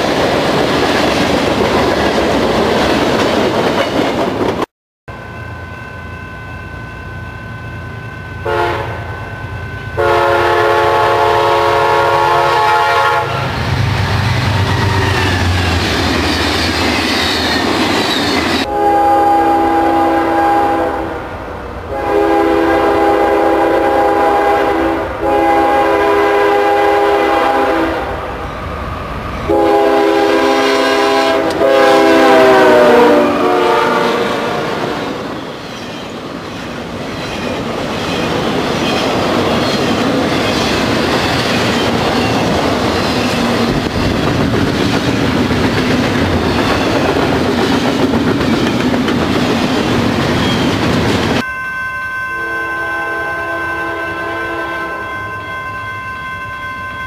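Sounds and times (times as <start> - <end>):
railcars rumbling and clacking: 0.0 - 57.0
locomotive air horn blasts: 8.4 - 9.2, 10.0 - 13.6, 18.6 - 21.2, 21.9 - 28.2, 29.5 - 35.2, 52.4 - 55.2.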